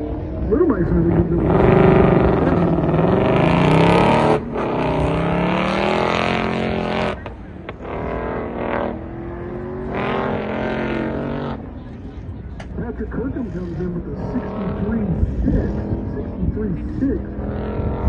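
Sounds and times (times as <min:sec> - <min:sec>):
car engine accelerating hard: 0:00.0 - 0:18.0.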